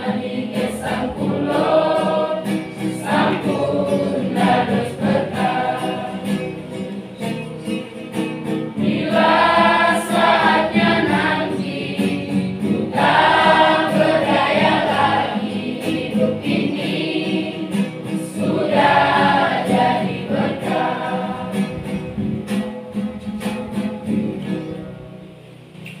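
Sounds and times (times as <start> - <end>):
choir singing gospel song: 0.0 - 7.1, 8.7 - 22.2.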